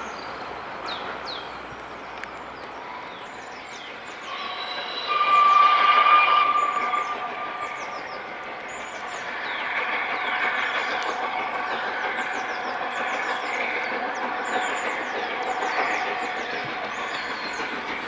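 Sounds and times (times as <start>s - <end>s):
birds chirping: 0.0s - 18.0s
steam locomotive approaching: 0.0s - 18.0s
steam whistle: 4.3s - 8.0s.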